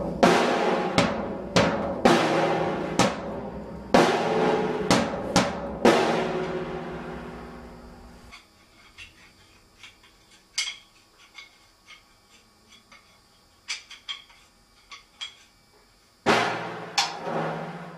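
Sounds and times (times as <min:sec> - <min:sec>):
loud drum hit: 0:00.0 - 0:07.3, 0:16.3 - 0:17.9
drum kit ringing: 0:00.0 - 0:07.9, 0:16.3 - 0:17.9.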